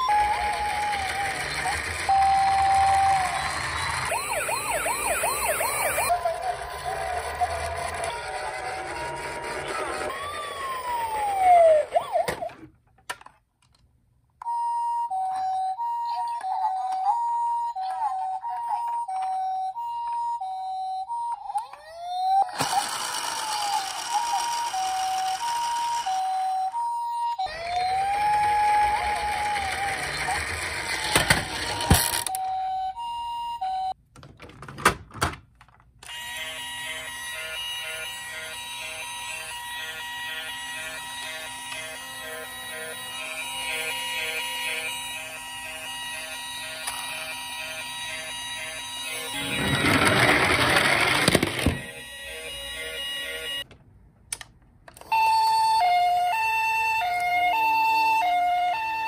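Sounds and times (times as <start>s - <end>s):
toy police siren pulsing: 0.0s - 12.7s, 14.4s - 34.0s, 36.0s - 53.7s, 55.0s - 59.0s
toy two-tone siren: 0.0s - 12.7s, 14.4s - 34.0s, 36.0s - 53.7s, 55.0s - 59.0s
plastic toy clattering on wood: 49.7s - 51.9s.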